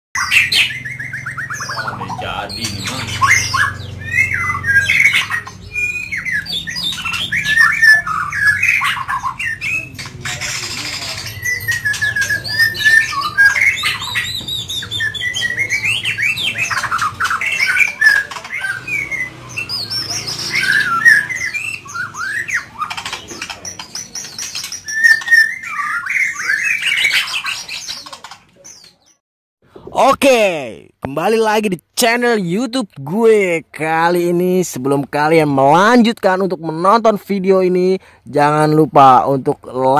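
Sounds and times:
songbird whistling and trilling: 0:00.2 - 0:29.2.

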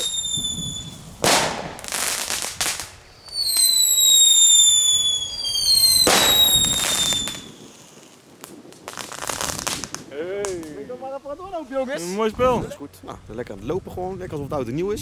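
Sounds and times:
firework whistles falling in pitch: 0:00.0 - 0:01.1, 0:03.2 - 0:07.8
firework bangs: 0:00.0 - 0:10.7.

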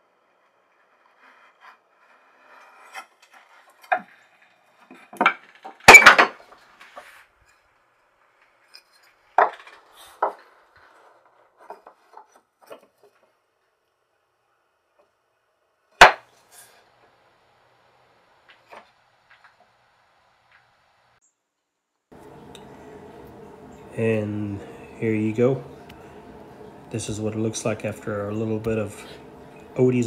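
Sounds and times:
faint wood scraping: 0:00.0 - 0:13.4, 0:22.1 - 0:30.0.

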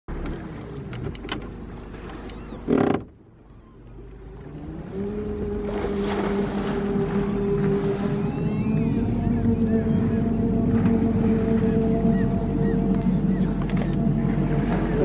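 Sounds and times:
motorboat engine: 0:00.1 - 0:15.0
water rushing along hull: 0:00.1 - 0:15.0.

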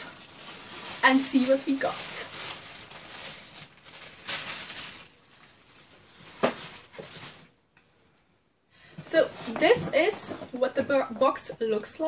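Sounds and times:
tissue paper rustling and crinkling: 0:00.0 - 0:07.5, 0:09.0 - 0:11.8.

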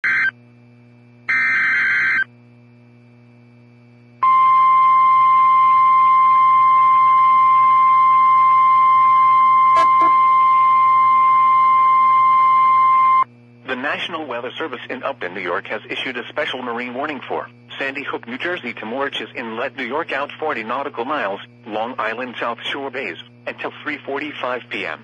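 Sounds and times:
steady alarm tone: 0:00.0 - 0:00.4, 0:01.3 - 0:02.3, 0:04.2 - 0:13.3
buzzy data burst: 0:01.3 - 0:02.3, 0:09.7 - 0:11.0.

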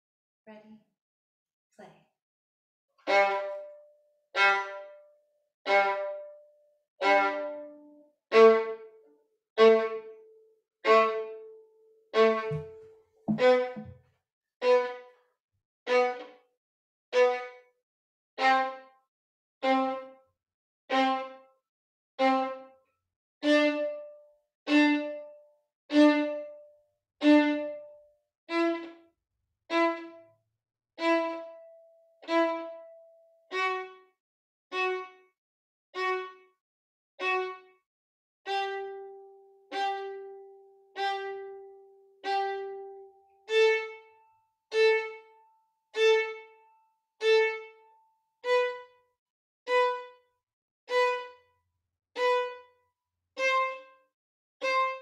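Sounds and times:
violin playing staccato notes: 0:03.1 - 0:03.7, 0:04.4 - 0:05.0, 0:12.2 - 0:13.9, 0:50.9 - 0:51.3, 0:52.2 - 0:52.6.

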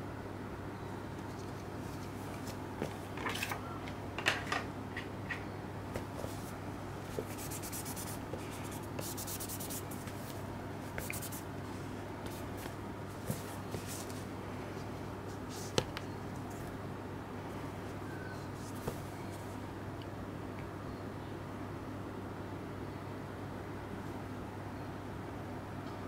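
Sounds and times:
steady low hum: 0:00.0 - 0:26.0
fabric rubbing on cardboard: 0:06.1 - 0:11.5, 0:12.2 - 0:14.2.

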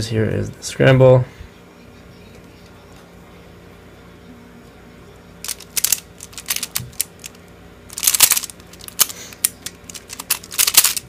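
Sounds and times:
puzzle cube plastic clicking: 0:05.4 - 0:11.0.

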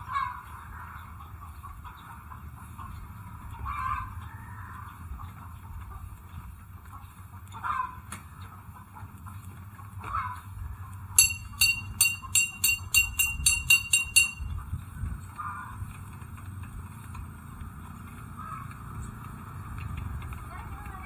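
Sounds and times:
low steady rumble: 0:10.8 - 0:16.3
high-pitched ringing strikes: 0:11.2 - 0:14.6.

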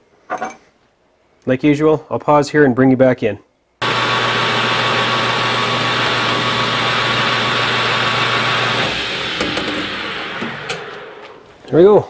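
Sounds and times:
drill bit drilling metal: 0:03.8 - 0:11.6
metal lathe humming and whining: 0:03.8 - 0:11.6.

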